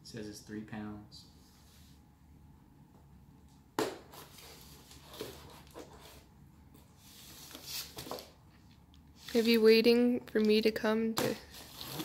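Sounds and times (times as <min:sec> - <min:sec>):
knife scraping cardboard: 0:04.1 - 0:06.3, 0:11.5 - 0:12.0.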